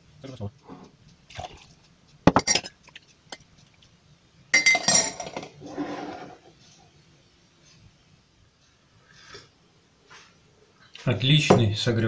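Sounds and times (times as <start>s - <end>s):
glassware clinking: 2.3s - 3.4s, 4.5s - 5.6s
soft scraping: 5.6s - 6.8s.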